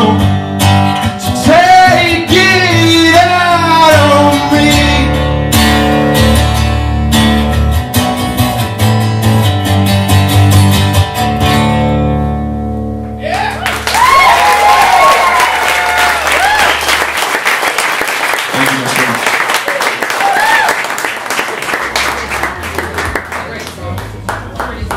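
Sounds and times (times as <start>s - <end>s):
man singing: 0.0s - 5.4s
acoustic guitar strumming: 0.0s - 13.2s
audience whooping: 13.2s - 17.6s, 19.5s - 23.2s
audience applause: 13.3s - 24.9s.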